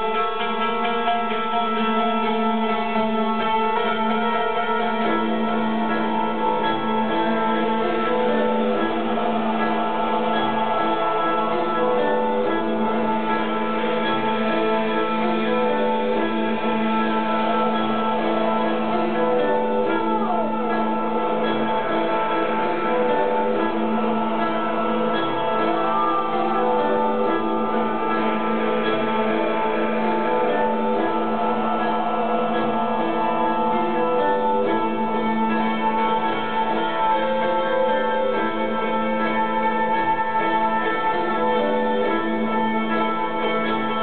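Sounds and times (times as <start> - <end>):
plucked lute: 0.0 - 44.0.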